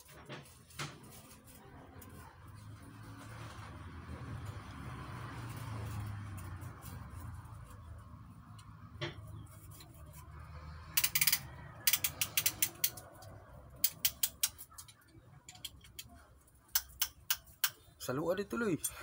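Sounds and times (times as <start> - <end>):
ratchet clicking: 10.9 - 16.1, 16.7 - 17.8.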